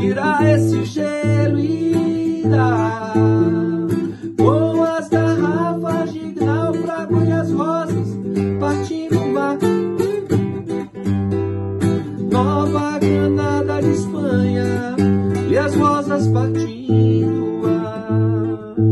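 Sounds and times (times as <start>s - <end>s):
man singing: 0.0s - 10.4s, 12.2s - 18.9s
nylon-string guitar: 0.0s - 18.9s.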